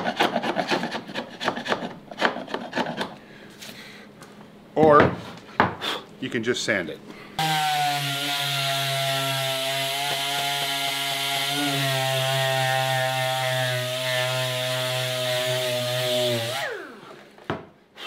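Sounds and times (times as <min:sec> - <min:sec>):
air-powered orbital sander whining: 0:07.4 - 0:17.3.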